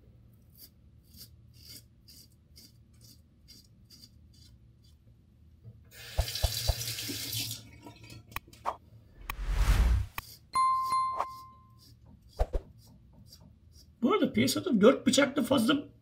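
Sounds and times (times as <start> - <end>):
razor scraping stubble: 0.5 - 5.0
tap running into sink: 6.2 - 7.4.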